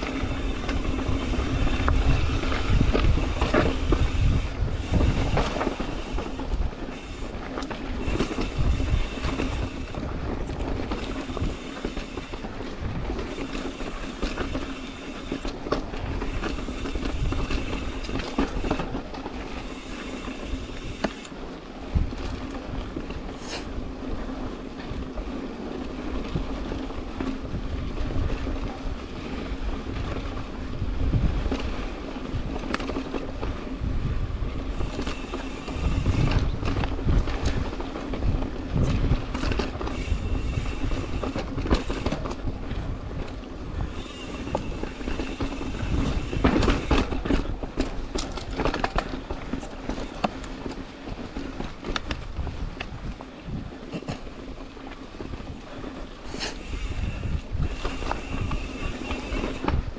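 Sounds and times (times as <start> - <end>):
bike knocks and rattles: 0.0 - 21.3, 31.0 - 59.9
bike hub buzzing: 0.0 - 23.8, 29.4 - 52.6, 55.6 - 59.9
bike tyre rumble: 0.0 - 59.9
wind on microphone: 0.0 - 59.9.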